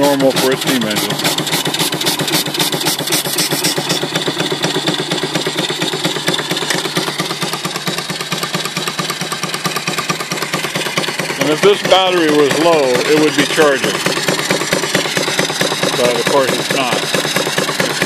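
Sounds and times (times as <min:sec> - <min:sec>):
steam hissing and water spitting: 0:00.0 - 0:04.2
steam engine exhaust chuffing: 0:00.0 - 0:18.0.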